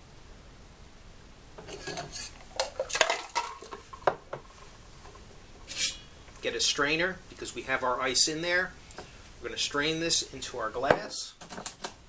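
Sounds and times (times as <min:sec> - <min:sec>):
metal shaker tins clinking: 0:01.6 - 0:06.1
ice rattling in shaker: 0:01.8 - 0:04.0.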